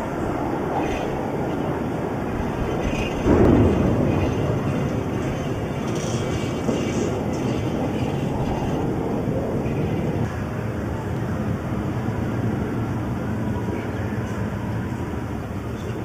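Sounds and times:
low city rumble: 0:00.0 - 0:16.0
distant explosion boom: 0:02.8 - 0:10.3.

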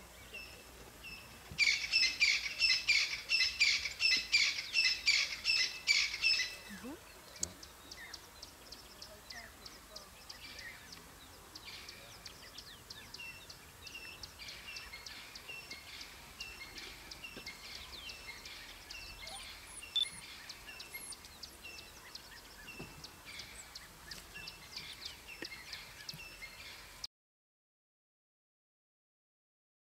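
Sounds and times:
high-pitched chirping and twittering: 0:17.3 - 0:23.0.

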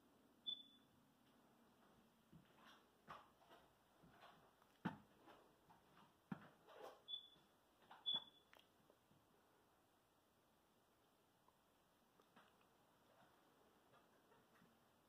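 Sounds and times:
footsteps on a floor: 0:01.7 - 0:07.0.

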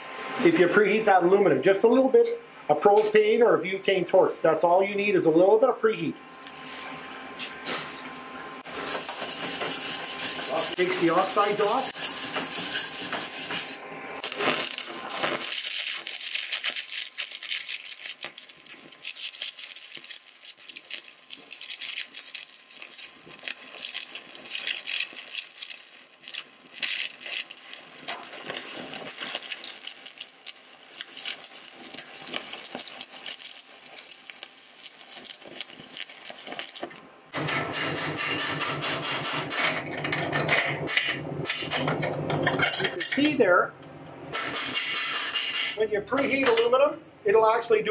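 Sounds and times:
welding arc crackling: 0:08.6 - 0:39.5
wire brush scrubbing metal: 0:08.7 - 0:36.9.

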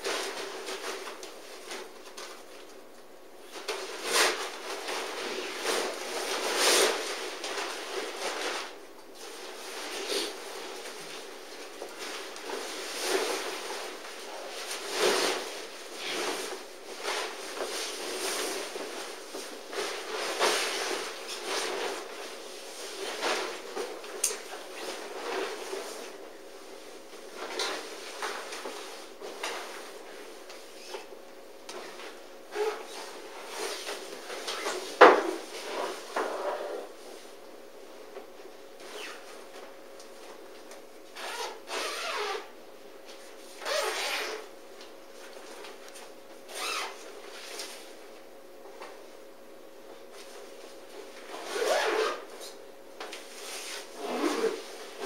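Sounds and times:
nylon fabric rustling: 0:03.4 - 0:31.1, 0:31.8 - 0:37.4, 0:38.8 - 0:40.6, 0:41.2 - 0:42.5, 0:43.2 - 0:44.5, 0:46.4 - 0:48.1, 0:50.1 - 0:52.4, 0:53.2 - 0:55.0.

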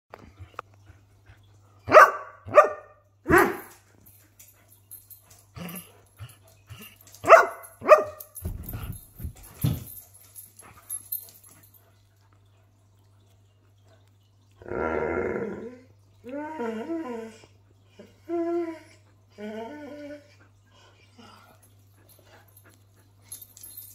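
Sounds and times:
dog barking: 0:01.9 - 0:03.7, 0:07.2 - 0:08.3.

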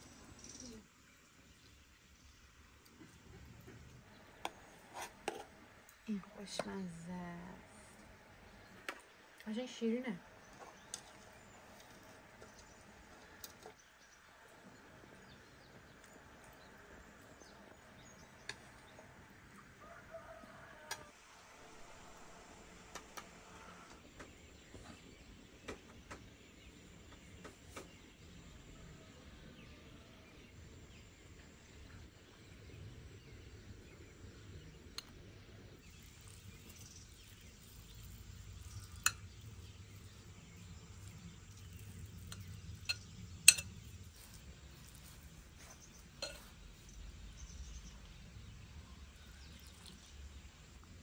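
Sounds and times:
forks tapping on plates: 0:42.4 - 0:43.8, 0:46.2 - 0:46.6.

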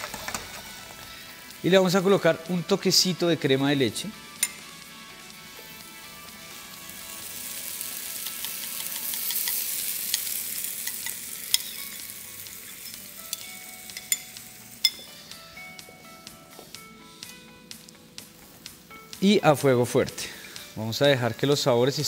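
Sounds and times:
cream sizzling in a frying pan: 0:00.0 - 0:02.3, 0:05.5 - 0:15.0.

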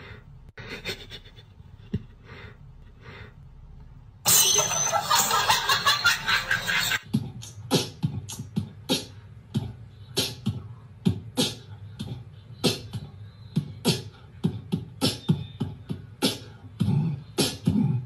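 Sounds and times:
beatbox-like percussive beat: 0:06.9 - 0:18.0.

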